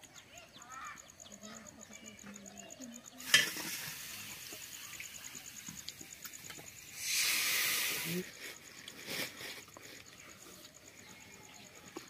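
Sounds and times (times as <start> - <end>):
faint outdoor hiss: 0.0 - 12.0
insect chirping in pulses: 0.0 - 12.0
loud rush of hiss: 6.9 - 9.6.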